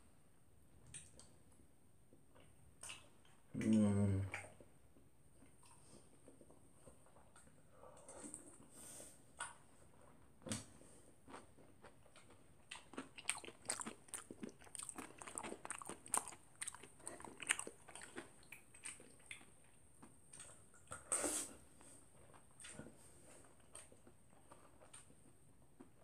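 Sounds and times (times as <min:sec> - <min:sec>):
cereal crunching while chewing: 0:11.3 - 0:20.6.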